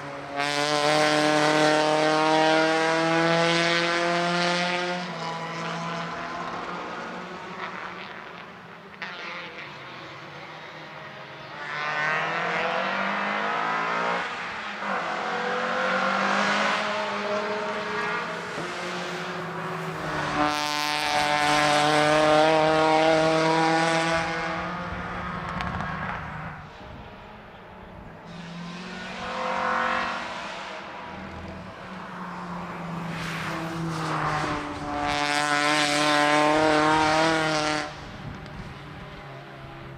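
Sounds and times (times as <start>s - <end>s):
racing car engines passing: 0.0s - 39.9s.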